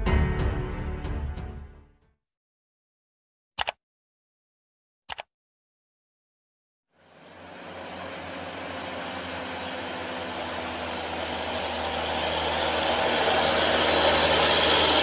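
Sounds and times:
diesel truck engine: 7.0 - 15.0.

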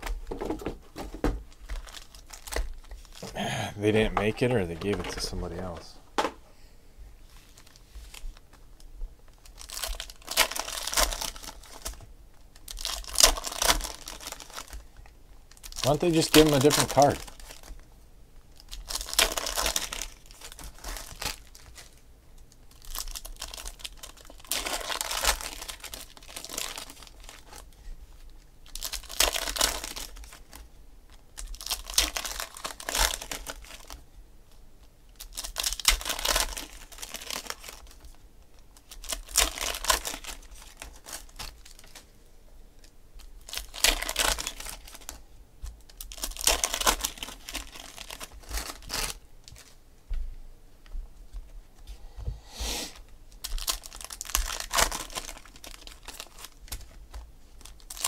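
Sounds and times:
foil packs tearing and crinkling: 1.7 - 3.3, 9.4 - 12.0, 12.6 - 14.8, 15.5 - 17.8, 18.6 - 22.0, 22.7 - 27.7, 28.6 - 30.6, 31.4 - 34.0, 35.2 - 38.2, 38.8 - 42.0, 43.4 - 45.2, 45.8 - 49.7, 53.4 - 58.0.

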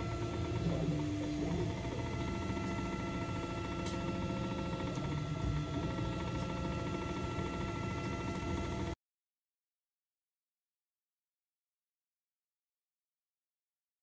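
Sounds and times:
printer stepper motors whining: 0.0 - 9.0
steady hum: 0.0 - 9.0.

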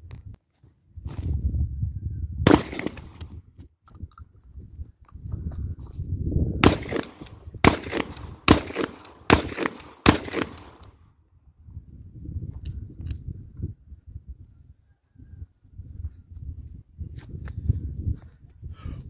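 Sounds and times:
shotgun shots: 2.5 - 3.3, 6.6 - 10.9.

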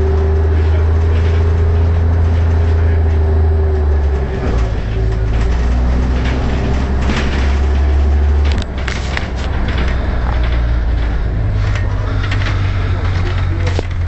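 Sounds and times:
bus engine drone with whine: 0.0 - 14.0.

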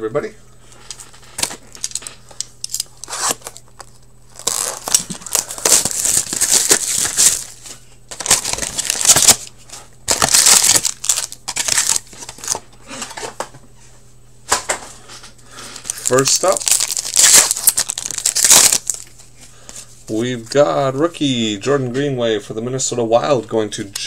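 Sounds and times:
plastic wrapping crinkling and tearing: 1.0 - 12.6, 15.8 - 19.2.

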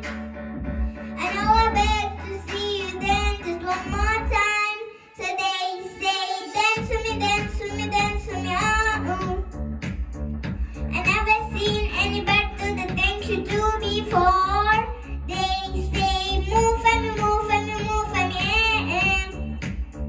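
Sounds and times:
backing track with beat: 0.0 - 4.6, 5.8 - 20.0
girl singing pop song: 0.0 - 20.0.

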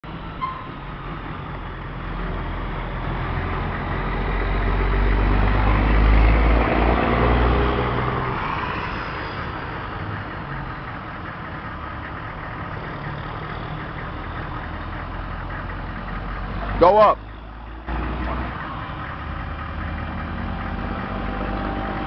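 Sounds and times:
truck engine idling: 0.0 - 22.0.

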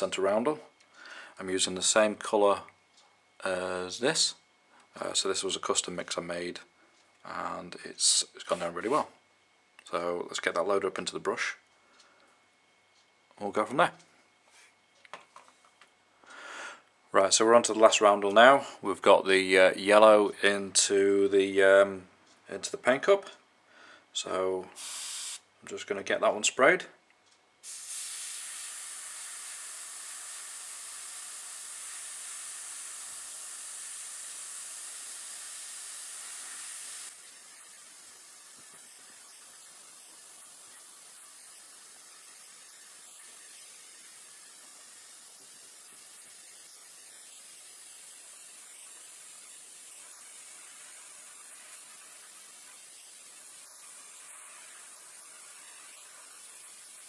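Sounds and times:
airbrush spraying hiss: 24.8 - 25.4, 27.6 - 57.0.

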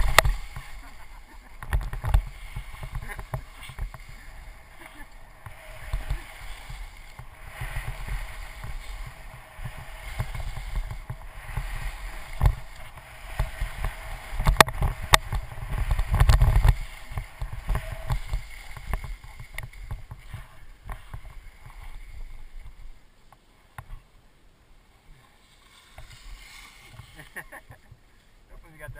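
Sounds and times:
wind buffeting microphone: 0.0 - 22.8
skis scraping packed snow: 0.0 - 24.0, 25.0 - 28.9.

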